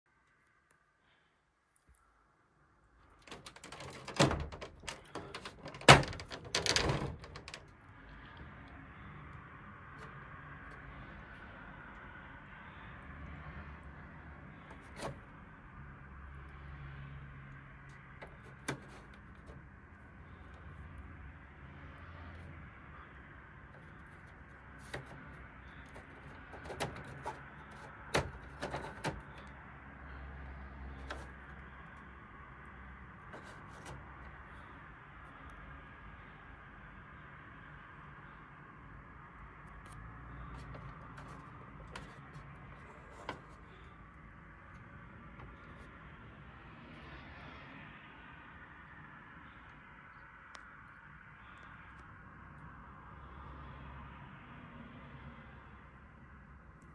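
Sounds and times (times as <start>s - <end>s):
plastic panel clicks and rattles: 3.2s - 7.8s, 14.7s - 15.3s, 17.8s - 19.8s, 23.7s - 29.6s, 30.9s - 31.5s, 33.2s - 34.6s, 40.4s - 43.8s
plastic clicks and knocks: 3.3s - 7.7s, 24.8s - 29.5s.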